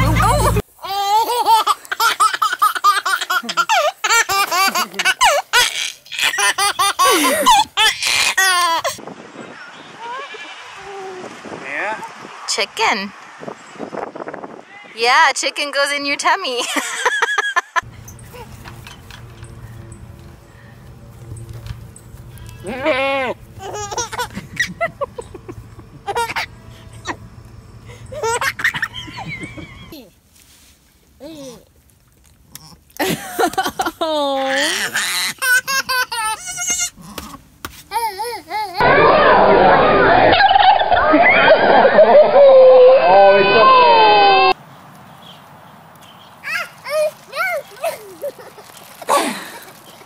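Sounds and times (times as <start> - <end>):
baby laughing: 0.0 - 9.0, 23.6 - 27.2, 28.1 - 30.0, 34.4 - 36.9
adult laughing: 6.2 - 8.6, 16.6 - 17.8, 22.8 - 27.2, 28.1 - 30.0, 33.0 - 34.5, 38.9 - 44.5.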